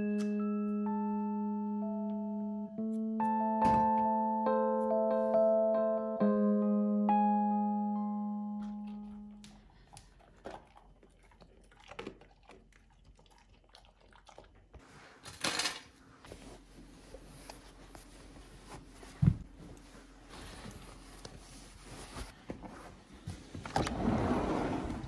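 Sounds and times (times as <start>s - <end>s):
music chord: 0.0s - 9.6s.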